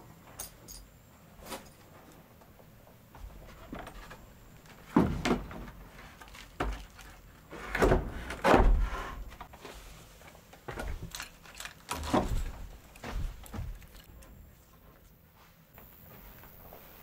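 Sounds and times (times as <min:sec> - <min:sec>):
knocks and scuffs: 0:12.0 - 0:17.0.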